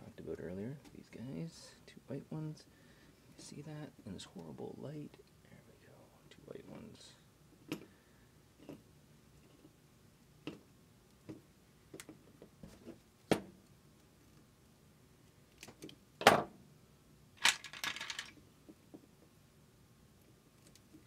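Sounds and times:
rattle of plastic wire nuts: 0:17.4 - 0:18.4.

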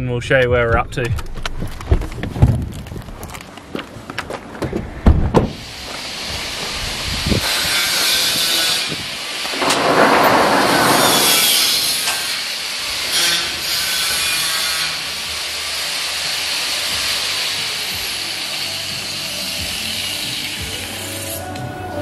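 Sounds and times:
rushing hiss: 0:05.5 - 0:21.5.

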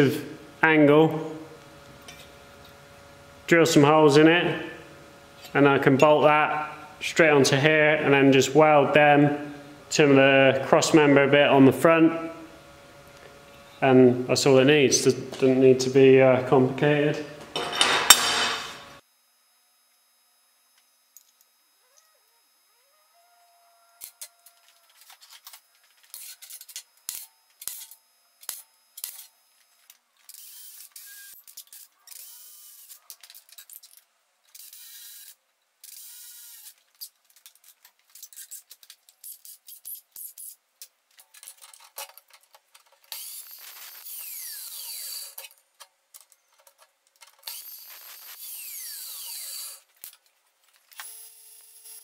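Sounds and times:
clicks and knocks of tools: 0:24.0 - 0:32.2, 0:36.7 - 0:43.2, 0:45.4 - 0:47.6
cordless drill drilling steel: 0:43.1 - 0:45.4, 0:47.4 - 0:49.9, 0:50.9 - 0:52.0.

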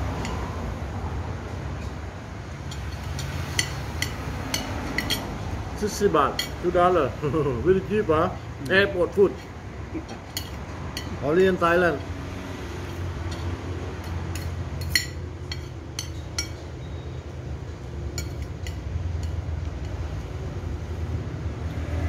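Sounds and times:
cutlery clinking on plate: 0:02.7 - 0:05.3, 0:18.1 - 0:20.0.

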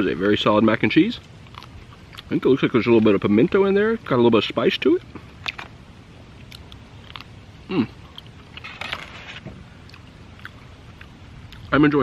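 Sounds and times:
low background rumble: 0:00.0 - 0:12.0
man chewing: 0:01.2 - 0:02.4, 0:06.3 - 0:11.7
man humming mm: 0:07.7 - 0:08.0.

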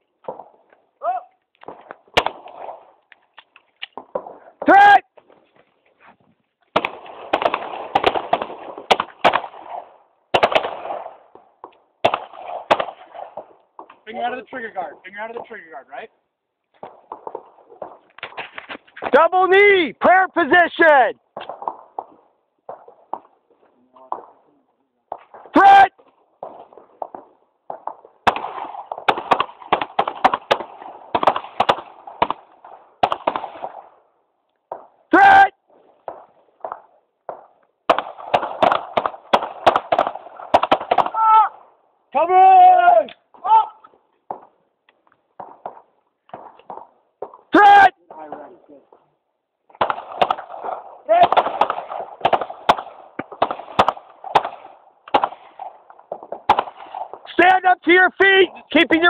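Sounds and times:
handguns firing with echo: 0:06.7 - 0:11.4, 0:12.0 - 0:13.5, 0:26.4 - 0:33.9, 0:36.0 - 0:41.2, 0:49.8 - 0:57.2.

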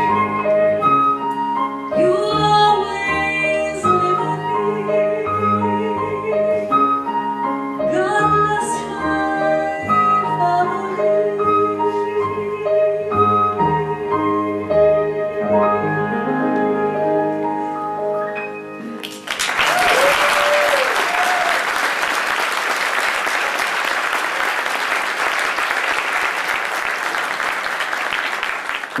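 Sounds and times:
keyboard accompaniment: 0:00.0 - 0:19.6
audience applause: 0:19.0 - 0:29.0
person whooping: 0:19.6 - 0:21.7.

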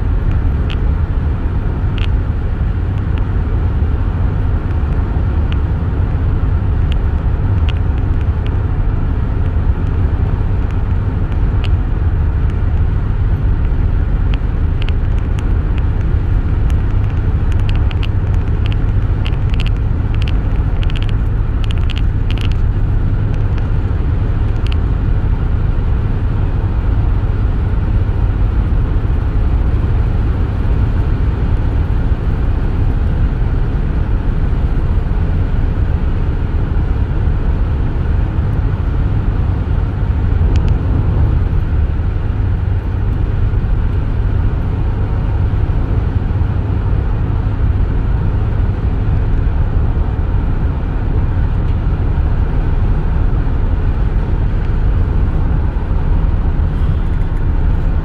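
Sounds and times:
car cabin road rumble: 0:00.0 - 0:58.0
light ticks: 0:13.6 - 0:22.7.

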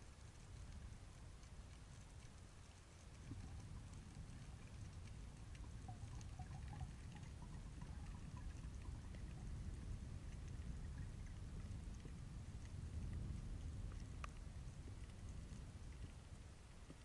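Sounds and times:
faint crackles and clicks: 0:00.0 - 0:17.0
underwater rumble of moving water: 0:00.0 - 0:17.0
small bubbling blips: 0:03.4 - 0:12.2.

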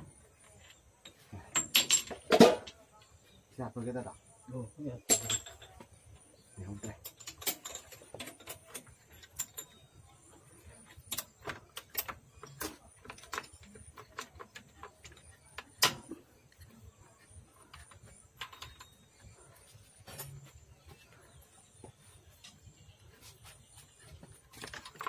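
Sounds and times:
metal gears clinking and knocking: 0:06.8 - 0:09.9, 0:17.7 - 0:19.3, 0:24.4 - 0:25.0.

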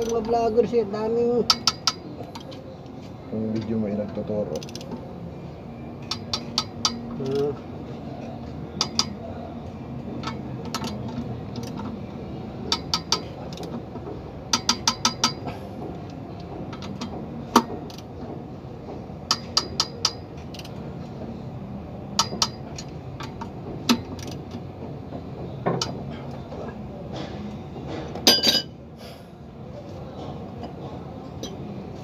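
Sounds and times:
ratchet wrench clicking: 0:01.5 - 0:02.6, 0:04.5 - 0:05.0, 0:06.0 - 0:07.6, 0:08.8 - 0:09.2, 0:10.2 - 0:11.9, 0:12.7 - 0:13.7, 0:14.5 - 0:15.4, 0:16.7 - 0:18.1, 0:19.3 - 0:20.8, 0:22.2 - 0:24.6.

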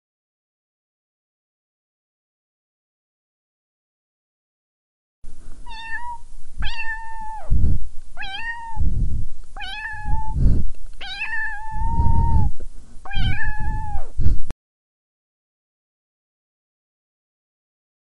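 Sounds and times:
low rumbles: 0:05.3 - 0:14.5
cat meowing: 0:05.7 - 0:07.5, 0:08.2 - 0:08.8, 0:09.6 - 0:10.4, 0:11.0 - 0:12.5, 0:13.1 - 0:14.2.

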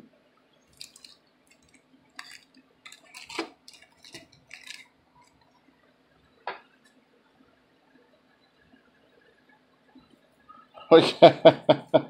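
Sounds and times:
small items clicking: 0:00.7 - 0:05.4
packaging rustling: 0:00.7 - 0:05.5.

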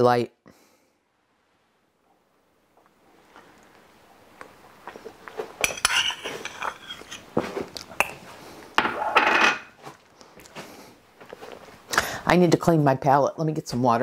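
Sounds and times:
ceramic dishes and spoon clinking: 0:05.6 - 0:07.3, 0:08.8 - 0:09.8.

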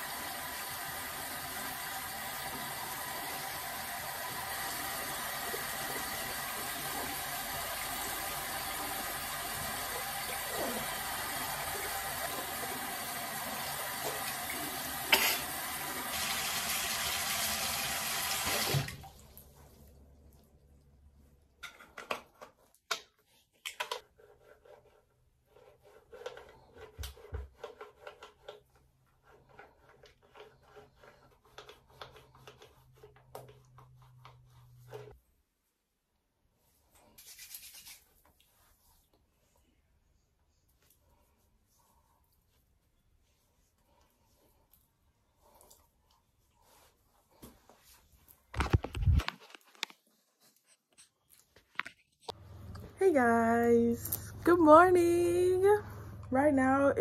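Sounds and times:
water running from tap: 0:00.0 - 0:19.6.

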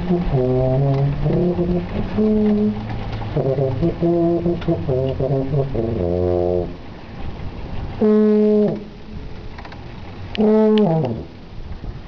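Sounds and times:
tuba held notes: 0:00.0 - 0:06.8, 0:08.0 - 0:08.9
low steady rumble: 0:00.0 - 0:12.0.

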